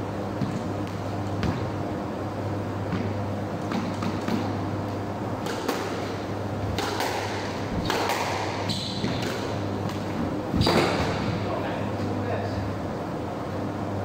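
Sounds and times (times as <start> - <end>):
squash ball smacks: 5.4 - 6.1, 6.7 - 11.1.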